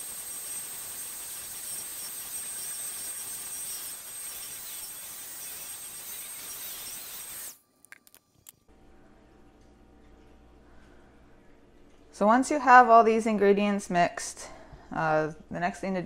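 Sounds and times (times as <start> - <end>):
electric hand mixer whining: 0.0 - 7.6.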